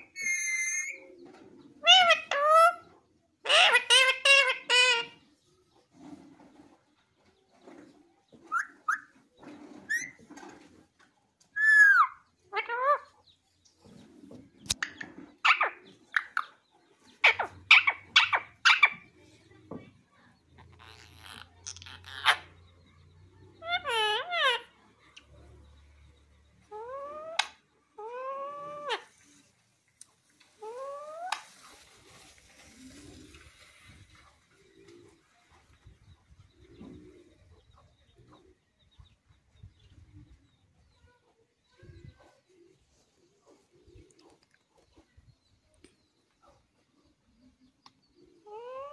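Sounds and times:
parakeet calling: 0:20.8 - 0:22.8, 0:23.6 - 0:24.8.

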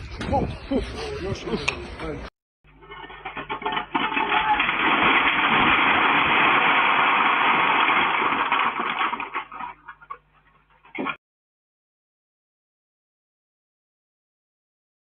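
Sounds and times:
timber and tiles crashing: 0:02.7 - 0:09.8.

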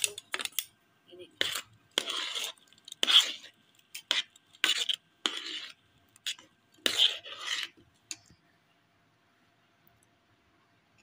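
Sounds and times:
spoon scraping metal pot: 0:01.4 - 0:07.8.

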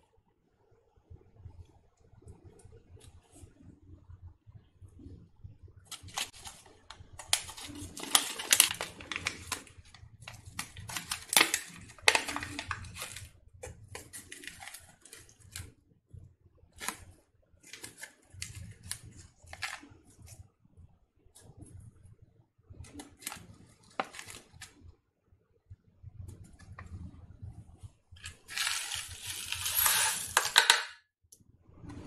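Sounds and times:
candy sachet crinkling: 0:05.9 - 0:15.7, 0:17.7 - 0:20.0, 0:28.2 - 0:30.6
popping candy crackles: 0:05.9 - 0:15.7, 0:28.2 - 0:30.6.

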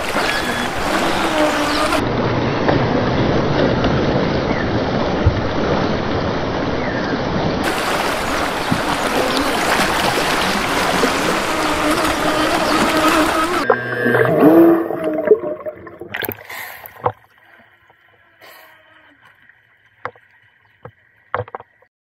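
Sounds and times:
electric motor whine: 0:00.0 - 0:02.0, 0:09.0 - 0:14.6
sea water rushing: 0:00.0 - 0:21.6
wind: 0:00.0 - 0:21.9.

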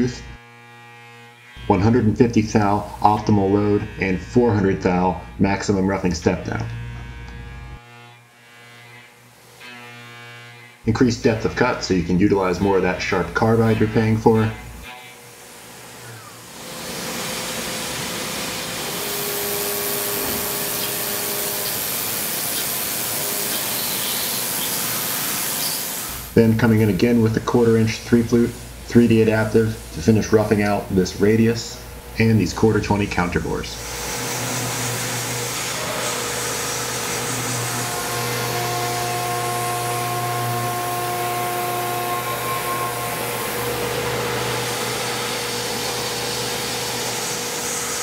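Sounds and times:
steady cutting tone: 0:00.0 - 0:47.9
mill cutting metal: 0:00.0 - 0:48.0
spray nozzles hissing: 0:16.8 - 0:32.7.

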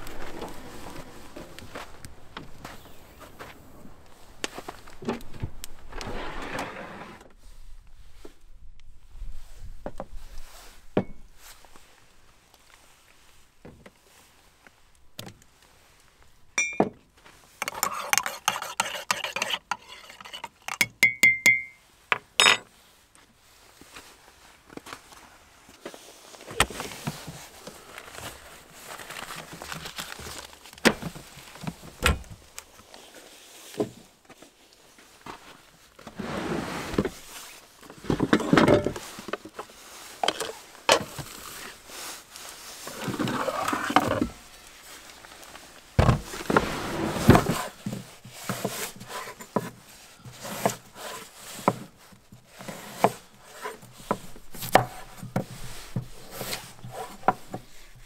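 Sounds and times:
rustling: 0:00.0 - 0:08.4, 0:22.7 - 0:58.0.

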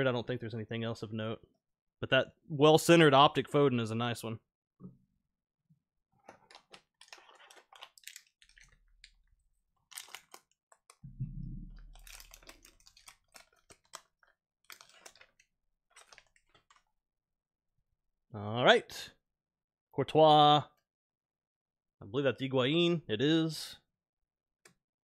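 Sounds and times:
plastic wrapper crinkling: 0:06.2 - 0:16.9
low thump: 0:11.0 - 0:11.9.

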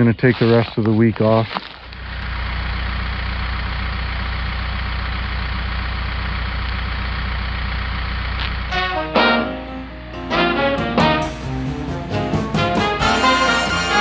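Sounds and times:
tractor engine idling: 0:00.0 - 0:09.2
brassy swing music: 0:08.7 - 0:14.0.

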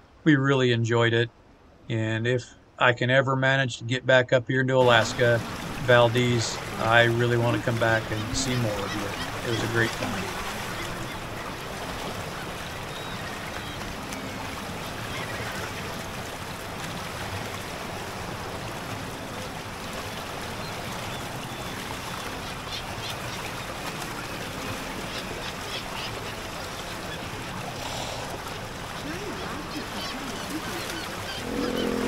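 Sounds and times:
flowing water rushing: 0:04.8 - 0:32.0
gulls calling: 0:04.8 - 0:32.0.

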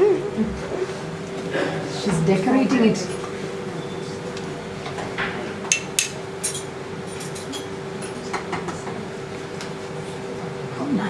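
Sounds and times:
steady hum: 0:00.0 - 0:11.0
utensils clinking on dishes: 0:04.8 - 0:09.0.

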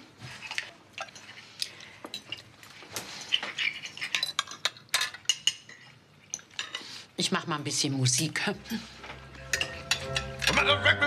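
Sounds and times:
cutlery clinking on plates: 0:03.2 - 0:06.9, 0:09.1 - 0:10.6.

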